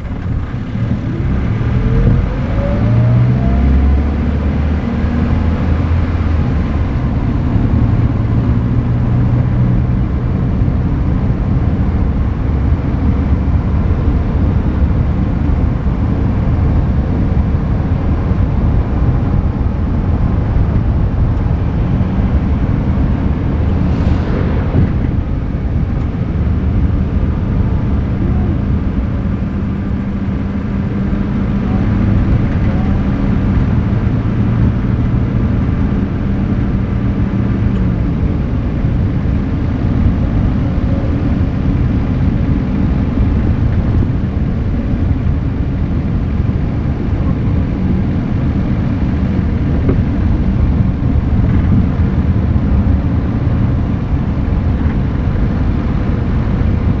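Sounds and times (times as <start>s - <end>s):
low engine hum: 0.0s - 57.0s
tyre and wind rush: 18.0s - 28.2s
brief whoosh: 23.0s - 27.0s.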